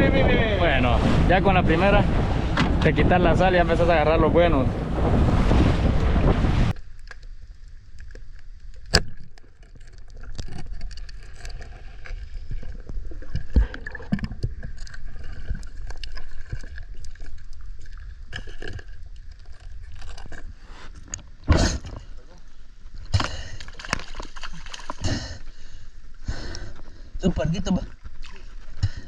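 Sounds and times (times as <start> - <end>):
wind noise on microphone: 0.0 - 6.8
muffled underwater water wash: 0.0 - 18.3
small clicks and crackles: 6.7 - 21.3.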